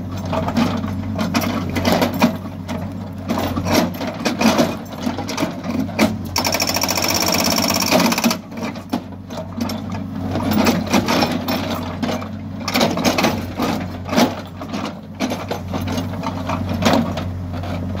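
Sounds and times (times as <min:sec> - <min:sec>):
diesel engine under load: 0:00.0 - 0:18.0
rapid rattling with high whine: 0:06.4 - 0:08.4.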